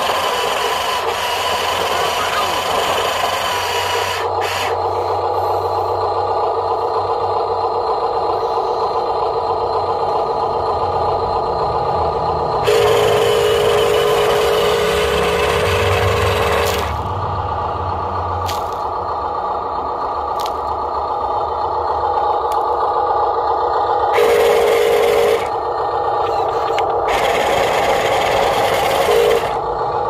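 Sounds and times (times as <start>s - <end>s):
wheels spinning in sand: 0.0s - 5.8s, 12.6s - 17.0s, 24.0s - 30.0s
toy truck motor whining: 0.0s - 17.2s, 22.1s - 30.0s.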